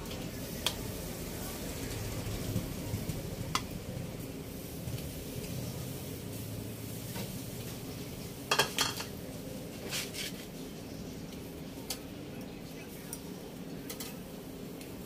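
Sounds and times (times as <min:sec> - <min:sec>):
metal tongs clinking on grate: 0:08.5 - 0:09.2, 0:13.9 - 0:14.2.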